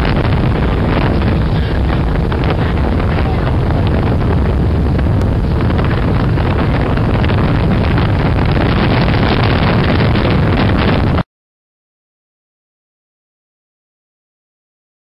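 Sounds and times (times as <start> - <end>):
outboard motors droning: 0.0 - 11.0
water rushing: 0.0 - 11.2
wind buffeting microphone: 0.0 - 11.2.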